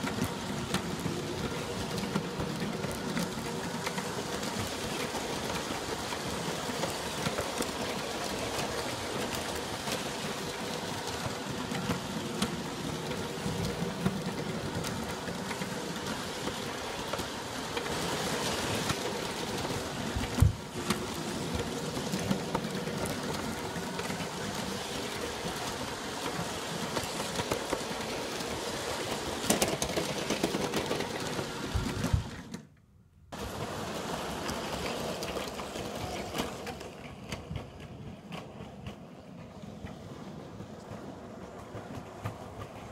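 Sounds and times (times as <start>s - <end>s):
wheels clicking on rails: 0.0s - 42.9s.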